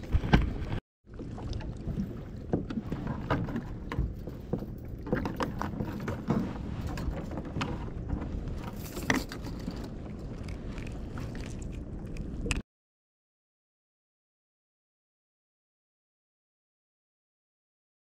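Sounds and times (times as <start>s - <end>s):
water lapping against a hull: 0.0s - 12.6s.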